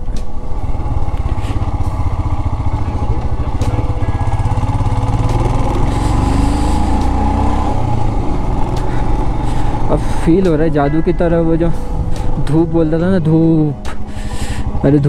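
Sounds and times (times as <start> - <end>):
motorcycle engine running: 0.0 - 13.9.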